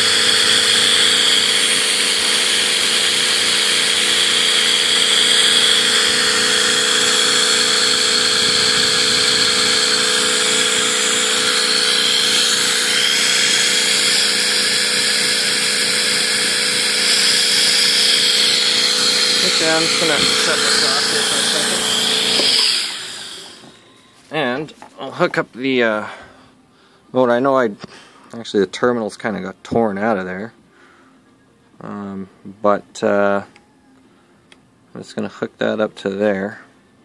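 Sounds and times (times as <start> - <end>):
compressed air hissing: 0.0 - 23.6
turbine high whine: 0.0 - 26.7.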